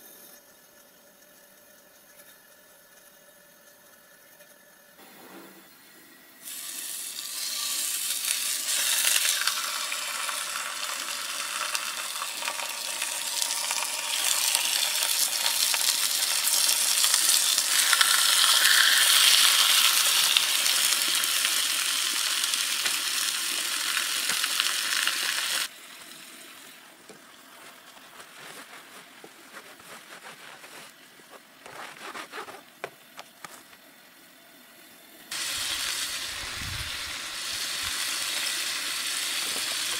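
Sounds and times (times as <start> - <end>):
chicken sizzling in skillet: 6.4 - 29.4, 35.0 - 39.9.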